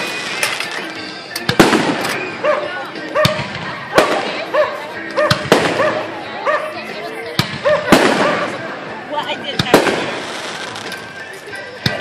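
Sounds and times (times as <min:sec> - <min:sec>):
fireworks bangs: 0:00.0 - 0:02.4, 0:03.2 - 0:04.5, 0:05.2 - 0:06.2, 0:07.4 - 0:08.8, 0:09.5 - 0:10.9.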